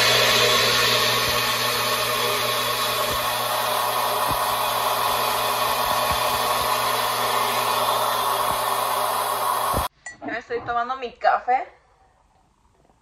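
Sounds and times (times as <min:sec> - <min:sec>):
electric fan motor rushing: 0:00.0 - 0:09.9.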